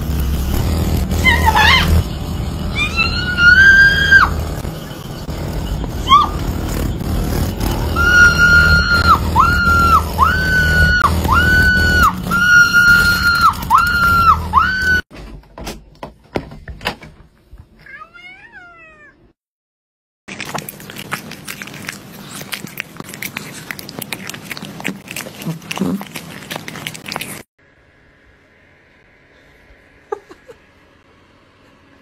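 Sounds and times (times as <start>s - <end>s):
low growling rumble: 0.0s - 15.0s
cat yowling: 2.7s - 4.4s, 6.0s - 6.4s, 8.0s - 15.0s.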